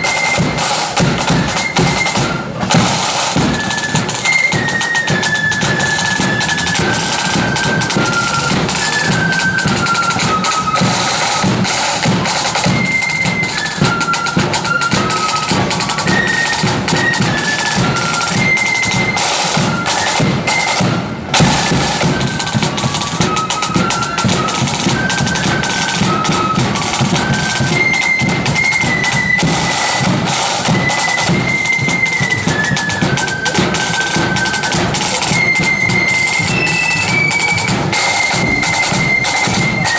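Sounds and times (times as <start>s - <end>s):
high flute melody: 0.0s - 39.9s
rattling side drums: 0.0s - 39.9s
deep drum beat: 5.1s - 12.8s.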